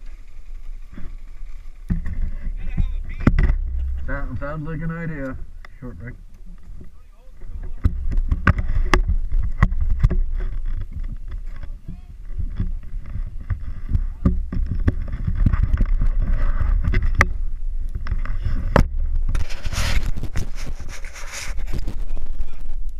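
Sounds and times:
knocks and rattles: 0.0 - 4.7, 6.6 - 20.6.

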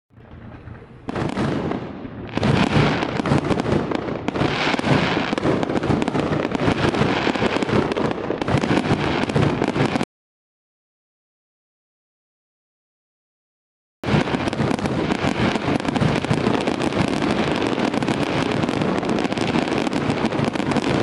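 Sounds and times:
fireworks bangs and crackling: 0.1 - 10.1, 14.0 - 21.0.

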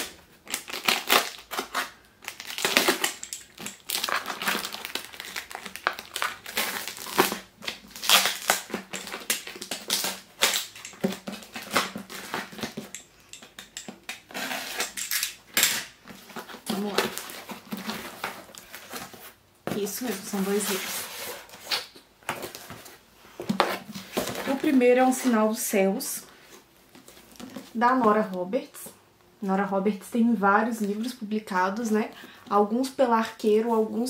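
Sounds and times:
packing crumpling: 0.4 - 12.8.

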